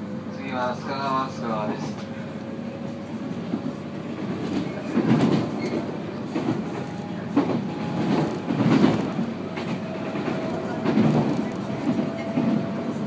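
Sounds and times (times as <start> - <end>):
train wheel and track noise: 0.0 - 13.0
wheels clacking over rail joints: 4.2 - 13.0.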